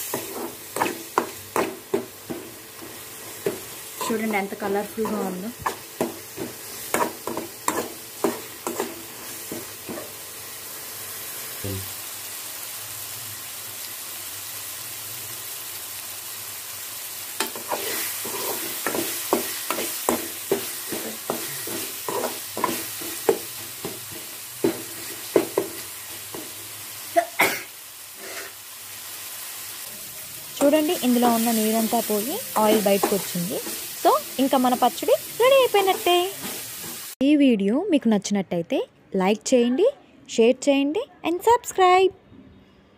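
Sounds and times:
oil sizzling: 0.0 - 37.2.

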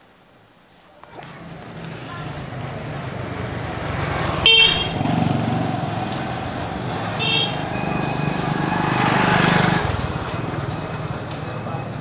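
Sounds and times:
horn toots: 4.4 - 5.2, 7.2 - 7.6.

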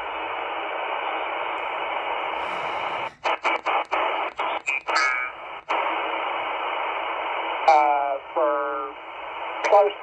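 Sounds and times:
radio receiver hiss: 0.0 - 10.0.

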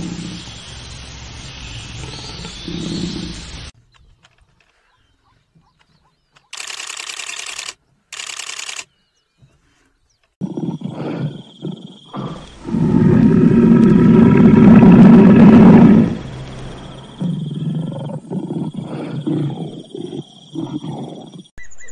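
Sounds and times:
lion hissing: 0.0 - 0.6, 2.0 - 3.7, 10.4 - 21.5
lion grunting: 10.4 - 16.2, 17.1 - 21.5
lion roaring: 10.4 - 21.5.

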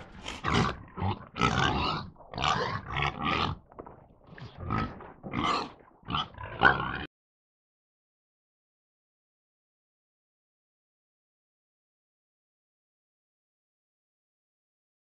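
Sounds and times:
hog squealing and grunting: 0.0 - 3.6, 4.4 - 7.1.

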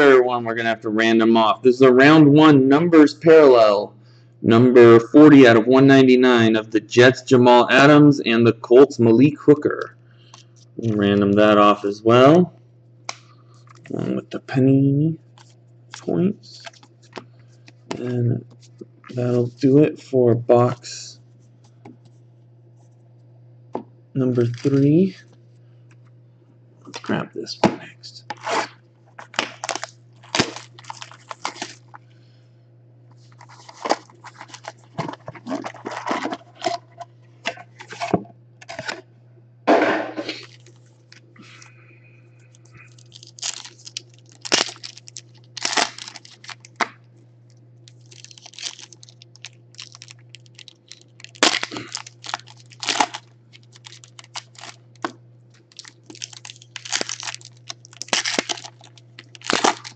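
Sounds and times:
steady low hum: 0.0 - 59.9
packs torn open: 24.4 - 24.8, 28.3 - 32.0, 33.3 - 36.8, 40.3 - 40.8, 42.9 - 47.0, 47.9 - 59.9
foil packs crinkling: 24.4 - 25.2, 28.3 - 32.0, 33.2 - 37.0, 40.3 - 41.7, 42.8 - 47.0, 47.8 - 59.9.

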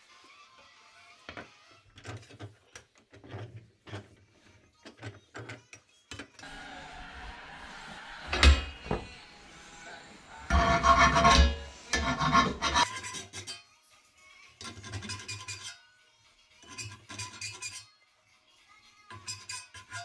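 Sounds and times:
tools being handled: 1.3 - 6.4, 14.6 - 15.8, 16.6 - 17.8, 19.1 - 20.0.

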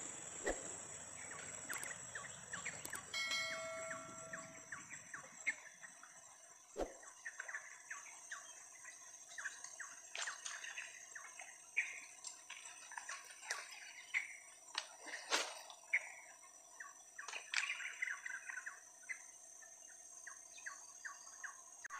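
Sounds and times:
steady high-pitched hum: 0.0 - 5.8
short chirps and ticks: 1.2 - 5.0.

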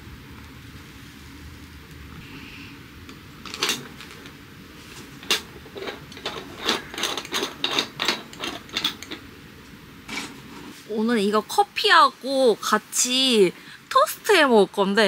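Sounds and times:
metal clinks: 5.2 - 9.2.

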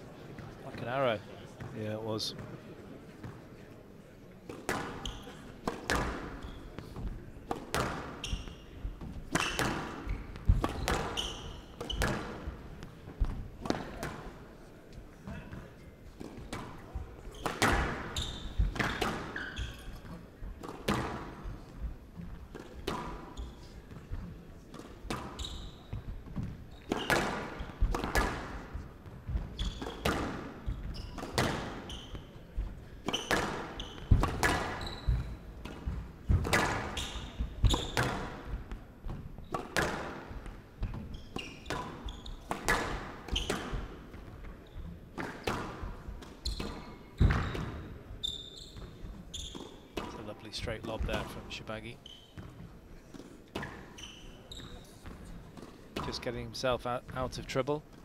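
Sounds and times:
squash ball hits: 4.6 - 6.4, 7.5 - 8.6, 9.2 - 12.5, 16.3 - 19.4, 20.6 - 21.3, 26.2 - 31.9, 33.0 - 41.0, 41.7 - 44.3, 45.2 - 47.9.

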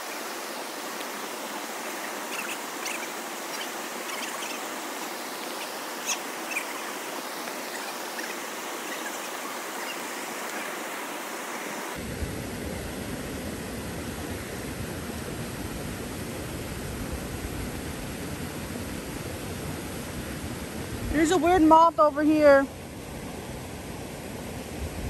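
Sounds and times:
river flowing over rocks: 0.0 - 12.0
waterfall rushing: 0.0 - 12.0.

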